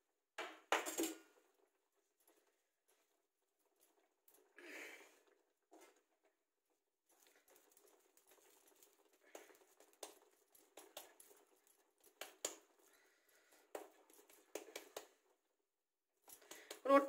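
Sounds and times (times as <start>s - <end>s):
wet hands patting dough: 7.1s - 15.6s, 16.2s - 17.0s.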